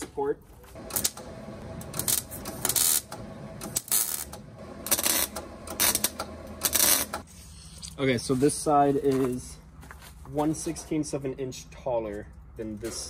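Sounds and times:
welder arc bursts: 0.8 - 7.2.

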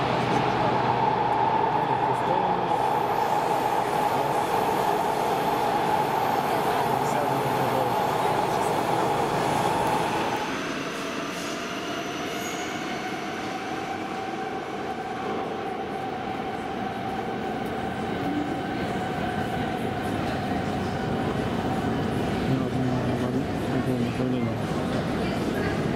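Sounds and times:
metro train whining: 0.0 - 25.9.

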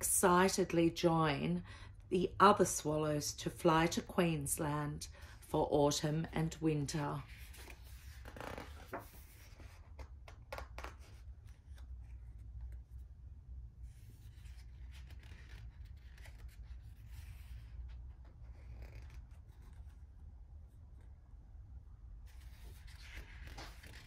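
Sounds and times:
book pages turning: 6.9 - 20.2, 22.2 - 24.0.

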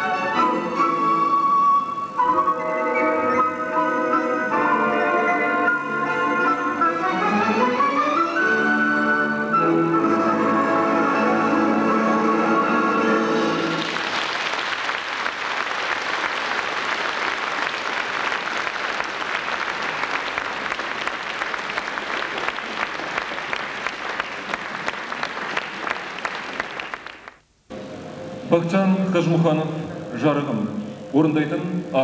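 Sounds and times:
music: 0.0 - 14.2, 27.7 - 32.0
audience applauding: 13.5 - 27.4.

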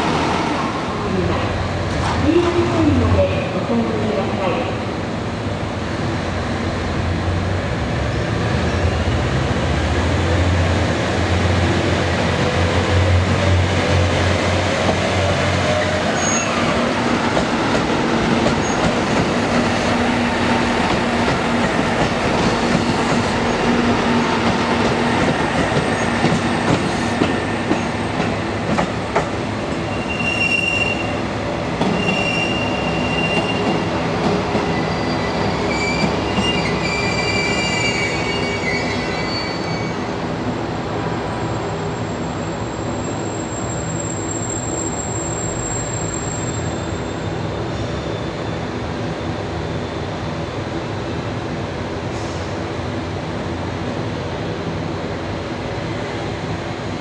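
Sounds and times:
train wheels on rails: 8.4 - 38.3
high wheel squeals: 29.9 - 31.2, 31.9 - 33.8, 34.6 - 40.1, 42.7 - 48.5.

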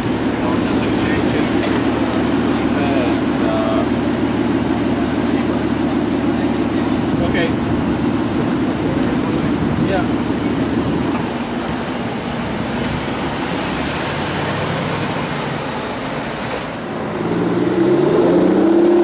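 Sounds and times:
car engine running: 0.0 - 19.0
street traffic noise: 0.0 - 19.0.

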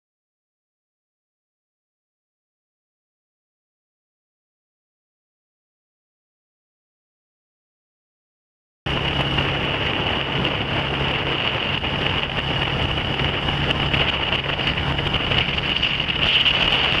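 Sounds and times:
atv engine running: 8.9 - 17.0
wind noise on microphone: 8.9 - 17.0.

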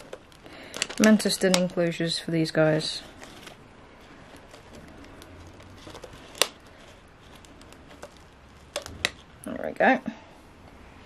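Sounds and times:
plastic cup handling: 3.0 - 9.3.

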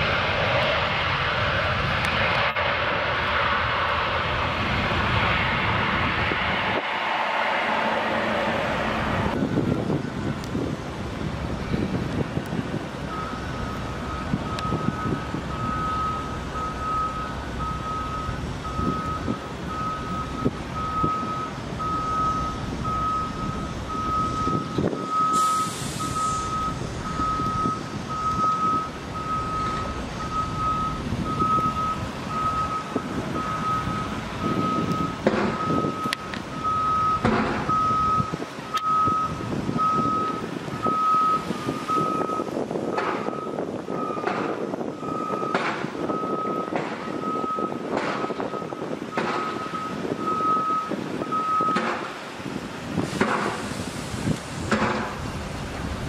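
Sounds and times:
low outdoor rumble: 0.0 - 25.0, 26.2 - 45.2
vehicle backup alarm beeping: 13.1 - 52.0
brief hiss: 25.3 - 26.6, 53.0 - 54.6.

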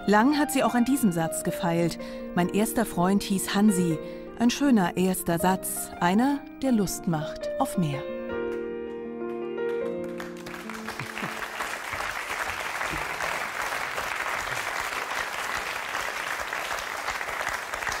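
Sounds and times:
soft instrumental music: 0.0 - 12.2
audience applauding: 9.8 - 18.0.

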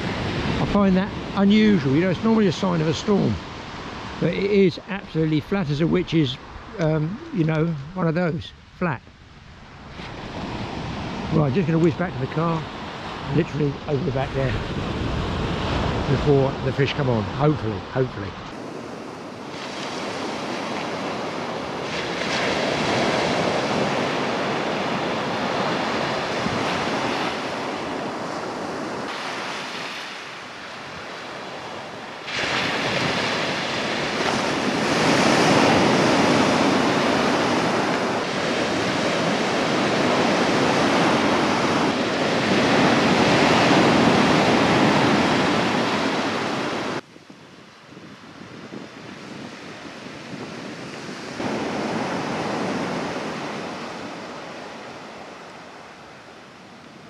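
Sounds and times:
surf breaking and crashing: 0.0 - 47.0, 48.2 - 56.3
waves washing on shingle: 9.9 - 47.0, 49.2 - 56.2.

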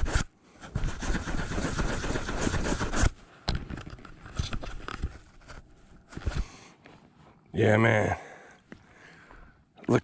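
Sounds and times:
fingers rubbing camera lens: 0.0 - 6.5.

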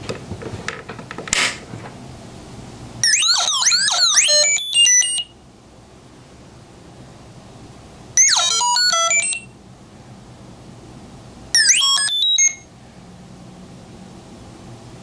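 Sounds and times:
electronic beeps and whistles: 3.0 - 5.3, 11.6 - 12.7.

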